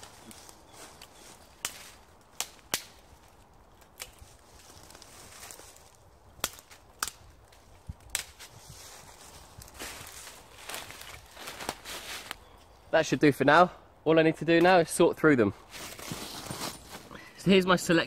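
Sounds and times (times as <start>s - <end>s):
twigs snapping: 0.2s - 12.5s.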